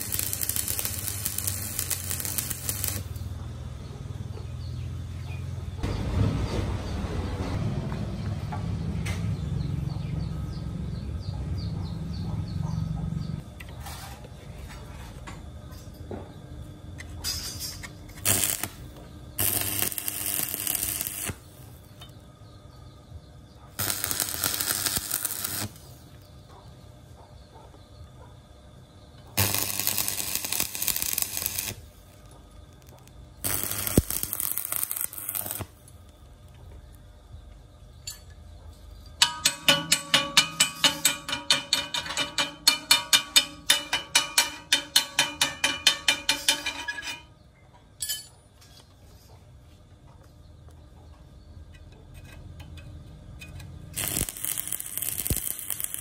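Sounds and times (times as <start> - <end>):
crackling welding arc: 0.0 - 3.3, 18.1 - 22.1, 23.8 - 26.0, 29.4 - 36.3, 53.9 - 56.0.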